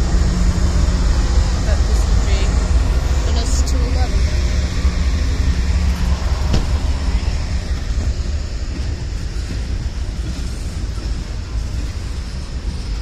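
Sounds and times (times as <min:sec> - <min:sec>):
diesel locomotive engine hum: 0:00.0 - 0:13.0
freight cars rumbling over rails: 0:00.0 - 0:13.0
sharp knock: 0:06.4 - 0:06.8.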